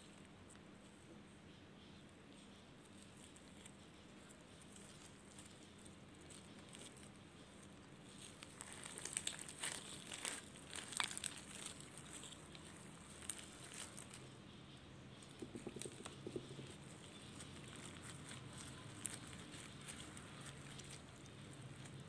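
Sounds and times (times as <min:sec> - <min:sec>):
slime crackling and popping: 0:04.5 - 0:14.3, 0:15.4 - 0:22.0.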